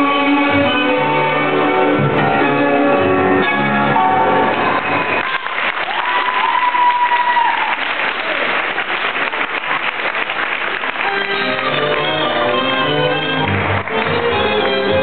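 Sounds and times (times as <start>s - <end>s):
tango music: 0.0s - 5.3s, 10.7s - 15.0s
audience applauding: 4.5s - 15.0s.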